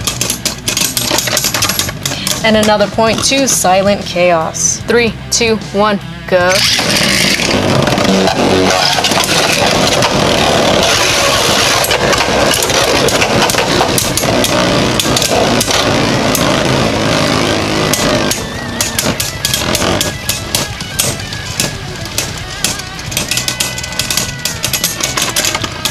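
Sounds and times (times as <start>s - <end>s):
spinning tops whirring and grinding: 0.0s - 4.3s, 6.5s - 25.9s
spinning tops clicking together: 17.9s - 25.9s.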